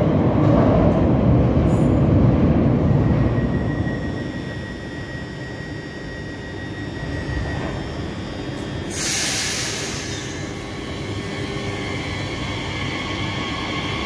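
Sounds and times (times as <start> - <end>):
electric train rumbling past: 0.0 - 14.0
loud hiss: 8.9 - 10.6.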